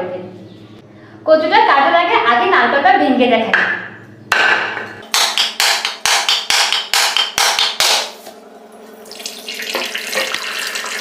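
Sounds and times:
blade striking coconut shell: 4.3 - 8.2
coconut water trickling: 9.0 - 11.0.

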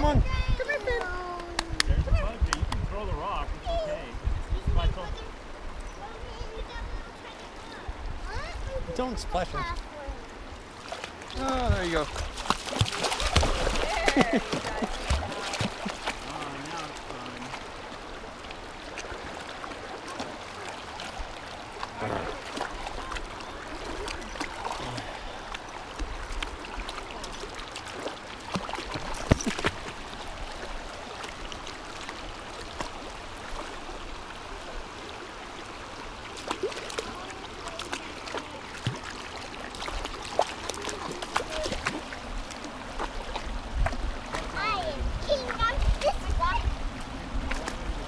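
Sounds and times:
creek running over rocks: 0.0 - 48.0
dog splashing through water: 10.8 - 16.9, 36.3 - 44.5.

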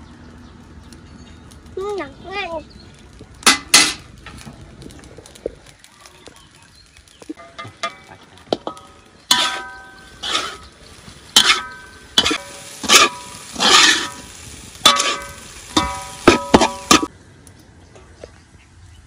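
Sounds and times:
metal spatula scraping a wok: 8.6 - 10.7, 11.3 - 17.1.

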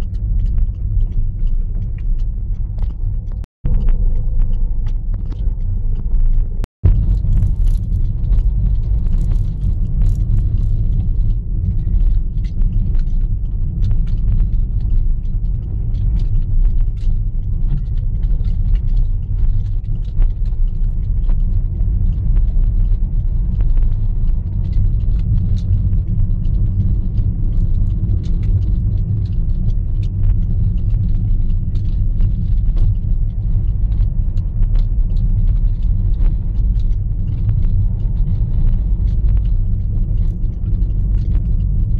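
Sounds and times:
car driving on rough road: 0.0 - 41.9
light clicks and rattles: 0.0 - 41.9.

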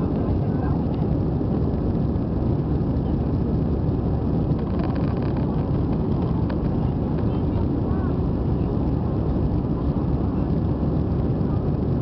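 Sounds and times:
airplane cabin engine rush: 0.0 - 12.0.

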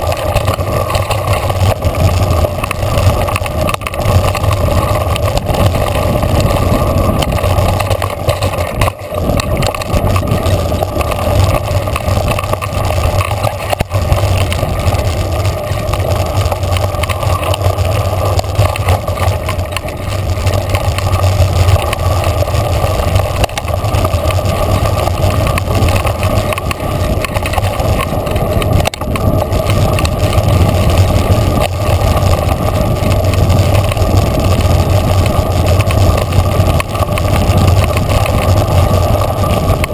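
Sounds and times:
bike tyres rumbling on dirt: 0.0 - 39.9
wind on microphone: 0.0 - 39.9.

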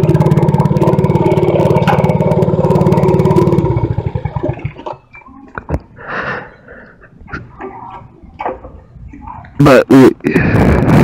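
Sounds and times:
small engine idling and stopping: 0.0 - 5.0.

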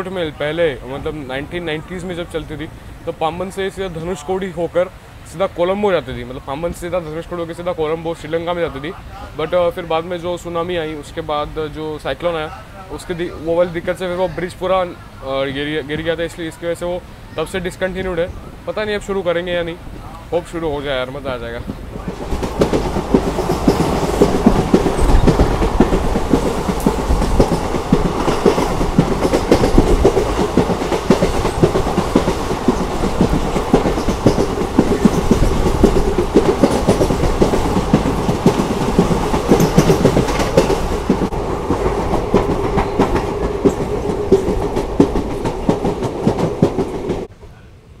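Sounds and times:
train wheels clattering over rails: 21.4 - 47.3.

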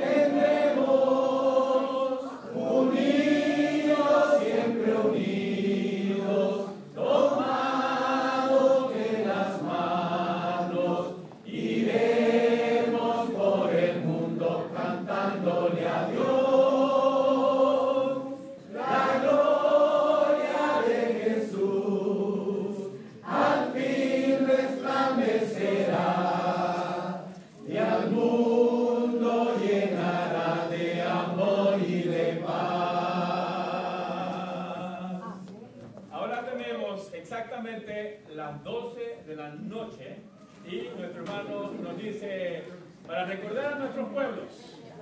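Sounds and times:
church choir singing unaccompanied: 0.0 - 35.6.

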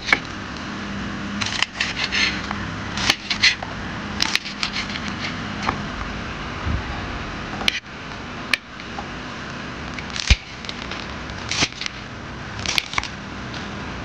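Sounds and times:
knife cutting fried tofu: 1.4 - 2.4, 3.0 - 3.6, 4.2 - 5.4, 10.2 - 12.0.

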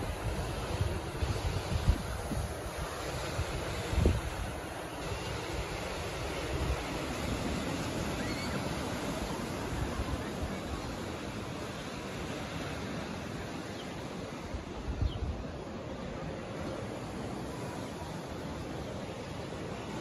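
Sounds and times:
wind buffeting microphone: 0.0 - 10.9, 14.5 - 17.7
small waves breaking on beach: 0.0 - 20.0.

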